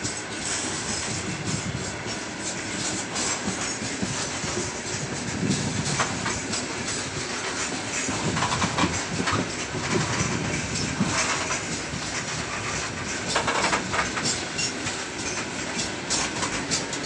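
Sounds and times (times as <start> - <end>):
steel wheels rumbling on rails: 0.0 - 17.0.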